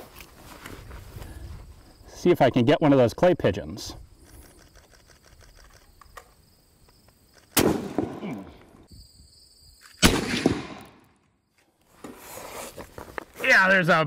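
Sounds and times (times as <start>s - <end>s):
rifle shots: 7.5s - 8.4s, 10.0s - 11.1s.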